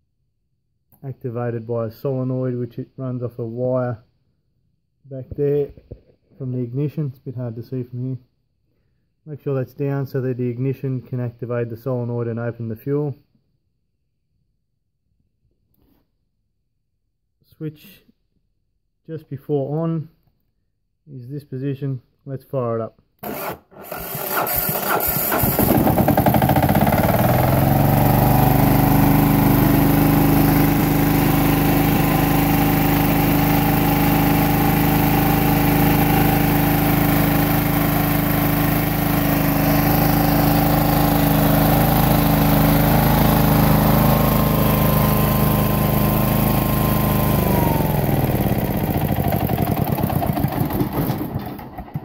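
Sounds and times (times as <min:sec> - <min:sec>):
diesel generator engine running: 0:23.2 - 0:52.0.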